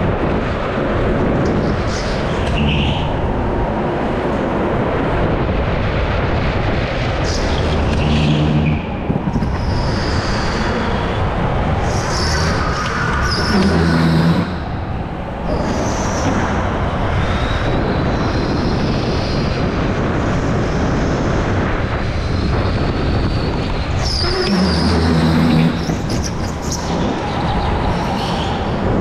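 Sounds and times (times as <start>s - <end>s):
steady rushing noise: 0.0s - 29.0s
low hum: 24.0s - 28.0s.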